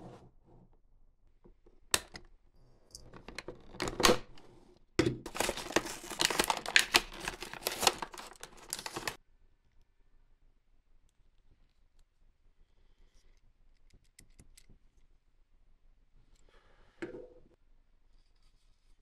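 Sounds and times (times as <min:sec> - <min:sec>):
packaging clicks: 0:05.3 - 0:09.2
plastic and cardboard rustling: 0:05.3 - 0:09.2.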